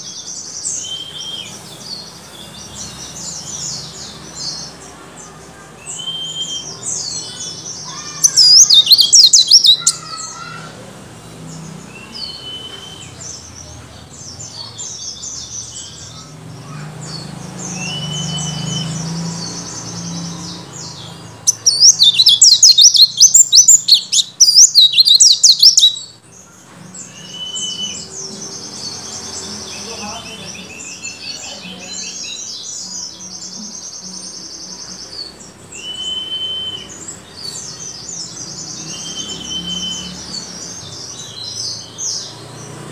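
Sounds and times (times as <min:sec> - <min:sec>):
loud rapid bird twittering: 0:00.0 - 0:42.9
bird chirping and whistling: 0:05.9 - 0:07.3, 0:07.9 - 0:10.3, 0:12.0 - 0:13.2, 0:17.7 - 0:19.4, 0:21.4 - 0:26.1, 0:27.1 - 0:28.2, 0:35.7 - 0:42.0.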